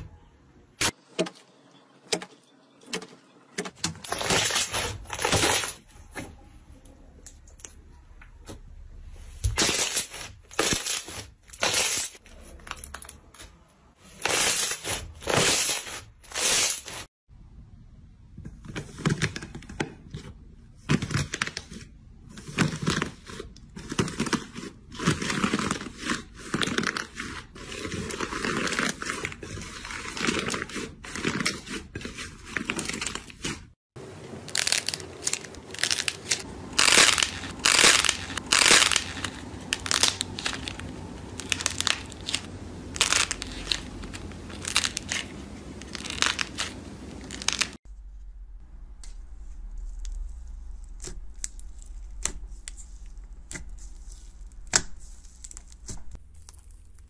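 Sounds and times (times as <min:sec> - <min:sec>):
slime crust crackling and crunching: 0:22.6 - 0:47.8, 0:49.1 - 0:57.0.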